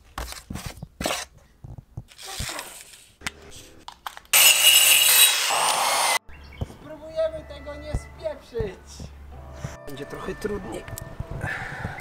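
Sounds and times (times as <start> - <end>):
angle grinder cutting wood: 4.4 - 6.2.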